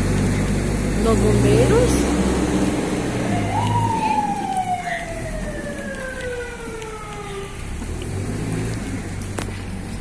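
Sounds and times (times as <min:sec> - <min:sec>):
siren wailing: 0:03.1 - 0:07.7.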